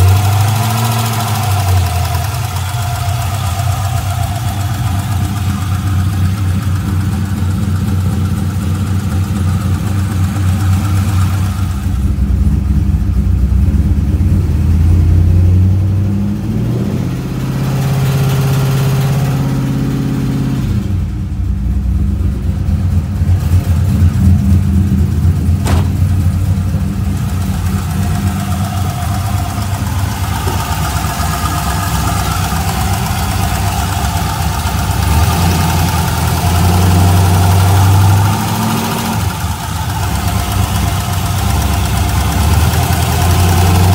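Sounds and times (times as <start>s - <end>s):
engine ticking: 0.0s - 16.5s, 17.4s - 43.9s
car engine idling: 0.0s - 43.9s.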